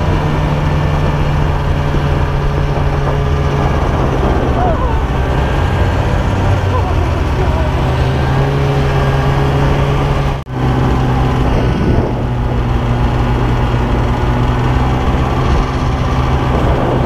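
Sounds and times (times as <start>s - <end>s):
snowmobile engine droning: 0.0s - 17.0s.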